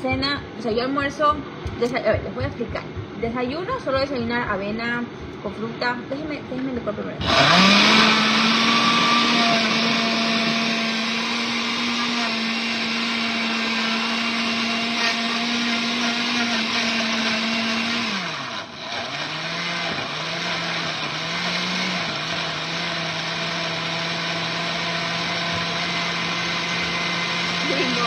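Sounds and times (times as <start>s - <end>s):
blender motor running: 7.2s - 28.0s.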